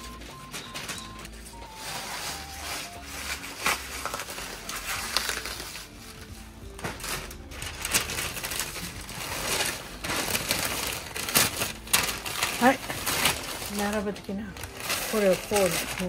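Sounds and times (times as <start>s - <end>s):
crinkling: 0.0s - 16.0s
light background music: 0.0s - 16.0s.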